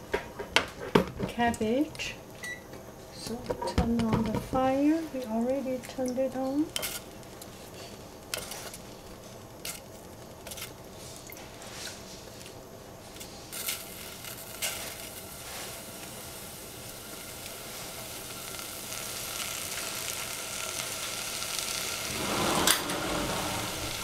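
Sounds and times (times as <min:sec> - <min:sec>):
mushrooms sizzling in a pan: 0:13.3 - 0:24.0.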